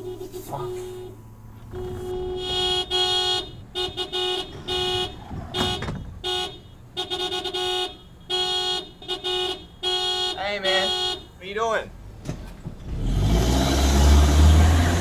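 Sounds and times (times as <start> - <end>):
car horn honking: 0.0 - 11.9.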